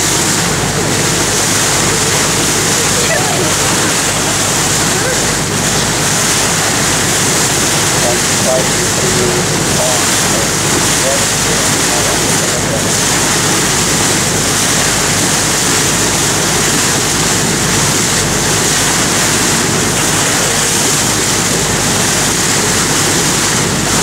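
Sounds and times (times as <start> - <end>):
water rushing along boat hull: 0.0 - 24.0.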